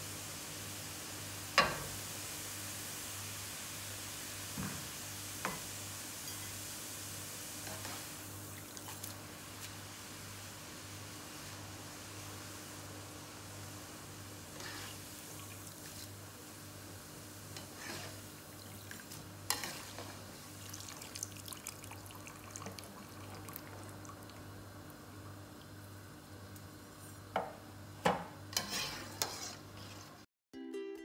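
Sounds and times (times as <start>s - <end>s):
oil sizzling: 0.0s - 30.2s
metal ladle scraping pan: 17.6s - 18.2s, 28.5s - 30.2s.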